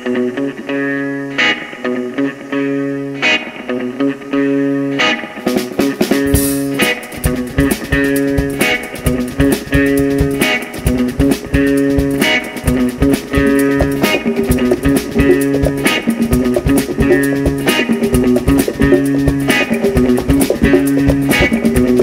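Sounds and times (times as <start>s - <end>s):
bass guitar: 0.0s - 22.0s
electric guitar riff: 0.0s - 22.0s
funk band playing live: 3.2s - 22.0s
drum kit groove: 5.4s - 22.0s
congas: 5.6s - 22.0s.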